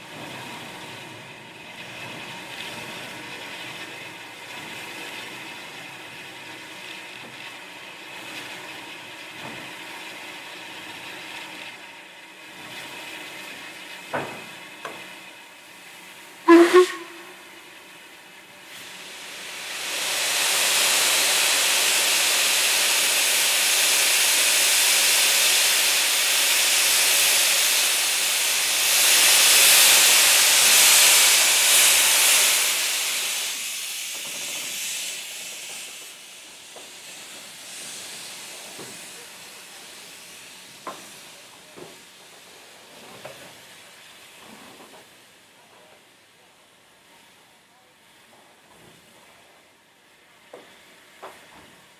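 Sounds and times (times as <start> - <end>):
steam hissing: 0.0 - 47.6, 48.2 - 51.9
steam locomotive whistle toot: 16.4 - 17.6.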